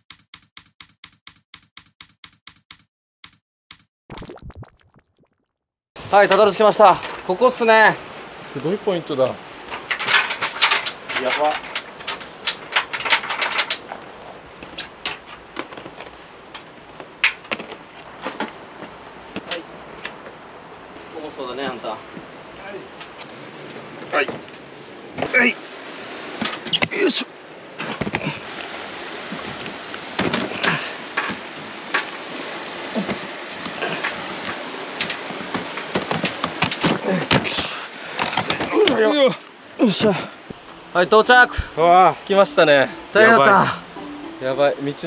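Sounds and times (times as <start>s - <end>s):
fishing gear clicks and knocks: 9.7s - 18.6s
steady hiss: 40.5s - 45.0s.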